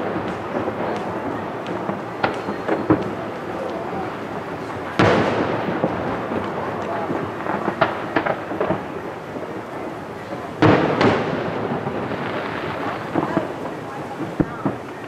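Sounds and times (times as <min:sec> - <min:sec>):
distant fireworks booming: 0:00.0 - 0:15.0
fireworks pops and crackles: 0:00.0 - 0:15.0.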